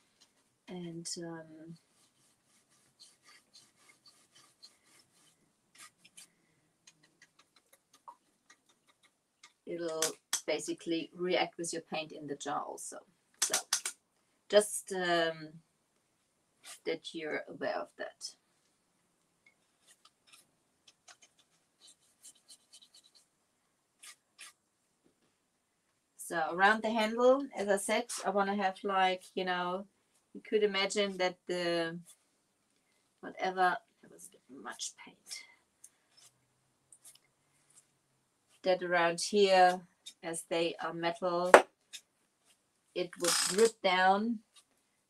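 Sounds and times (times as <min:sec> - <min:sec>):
paintbrush scratching on metal: 0:01.7 - 0:06.3.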